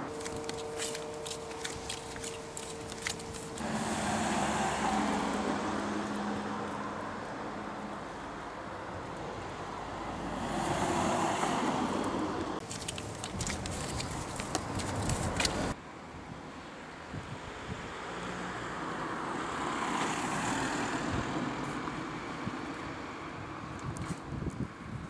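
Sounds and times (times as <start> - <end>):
flip-flops slapping on pavement: 0.0 - 3.6, 12.6 - 15.8
cars passing: 0.0 - 15.8, 17.3 - 23.8.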